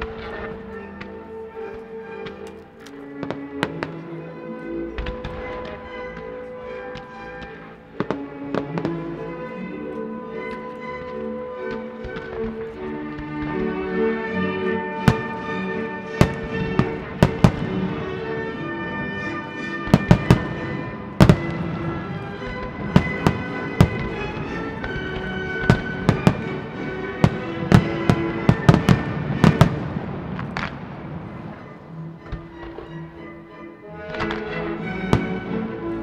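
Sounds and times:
music with sustained notes: 0:00.0 - 0:36.0
firework shells bursting: 0:19.7 - 0:31.2.

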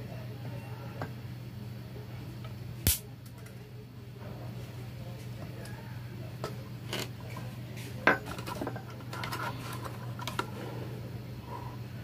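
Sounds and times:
steady low hum: 0:00.0 - 0:12.0
sharp click: 0:02.9 - 0:03.1.

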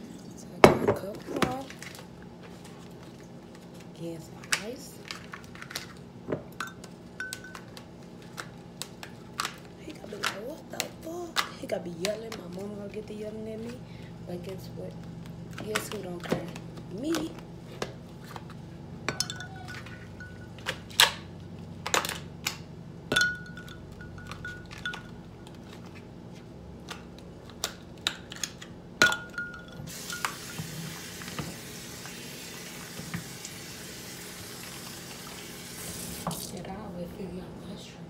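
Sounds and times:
kitchen tap running: 0:29.9 - 0:36.6.

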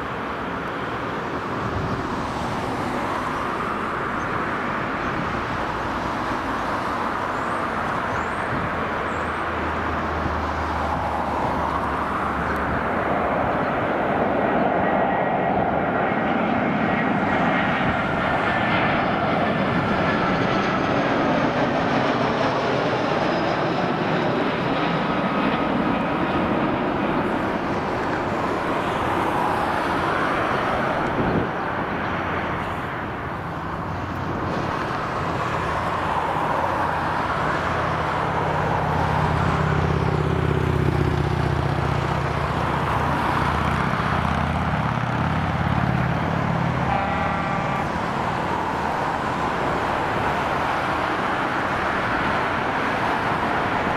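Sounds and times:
jet engines roaring: 0:00.0 - 0:53.9.

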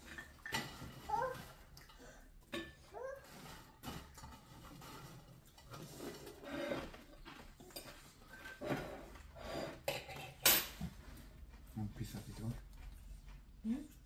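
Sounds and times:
tableware clinking on plates: 0:09.7 - 0:10.9.

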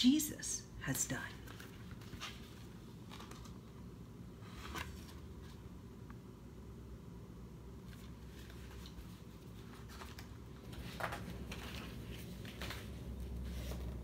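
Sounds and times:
low steady hum: 0:00.0 - 0:14.0
book pages rustling: 0:01.3 - 0:03.8, 0:04.4 - 0:05.7, 0:07.8 - 0:14.0.

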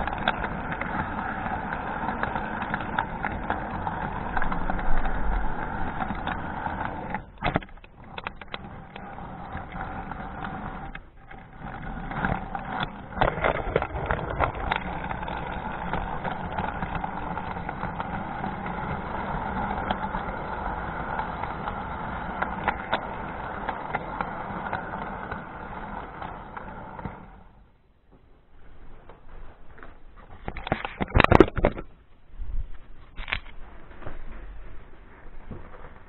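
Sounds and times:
model train motor hum: 0:00.0 - 0:27.7
wheels rattling on rails: 0:00.0 - 0:27.7
wheels clacking over rail joints: 0:00.0 - 0:32.0.

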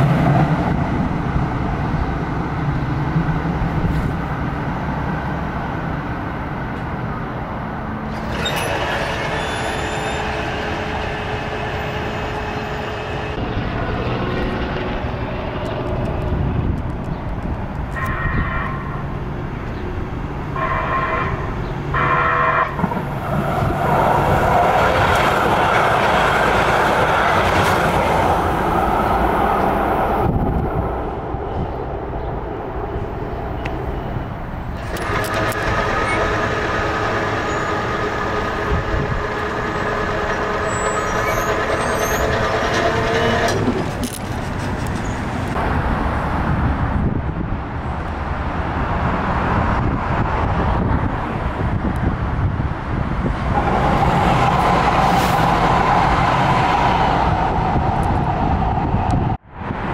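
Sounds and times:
train passing: 0:00.0 - 0:59.9
train horn toots: 0:17.9 - 0:19.0, 0:20.6 - 0:22.9.

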